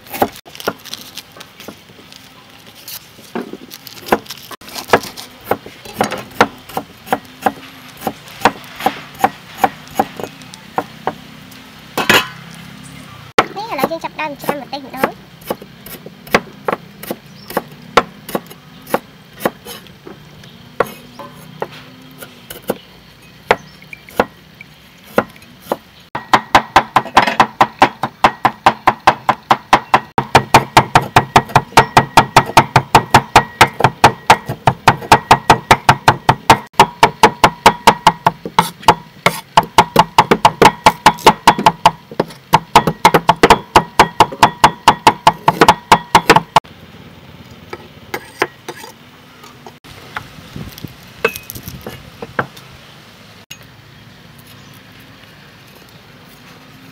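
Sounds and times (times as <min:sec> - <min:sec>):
cleaver chopping on wooden block: 0:25.1 - 0:46.6.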